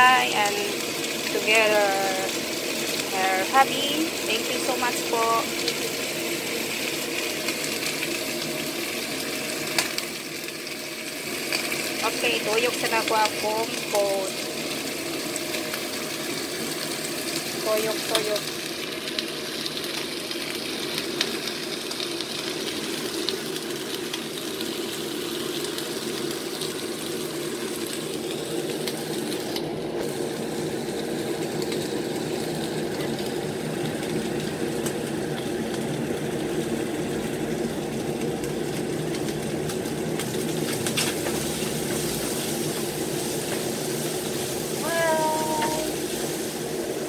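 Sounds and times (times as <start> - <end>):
even hiss: 44.6 - 46.8.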